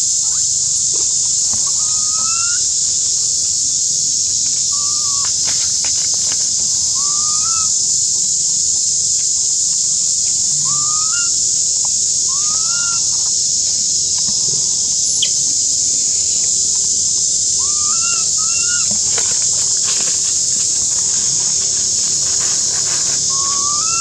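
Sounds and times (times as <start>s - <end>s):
insects buzzing: 0.0s - 24.0s.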